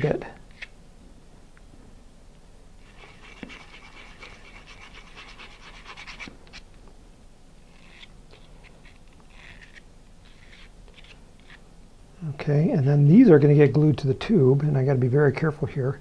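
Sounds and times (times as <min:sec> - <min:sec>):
sandpaper scratching: 0:02.8 - 0:06.6, 0:07.8 - 0:11.6.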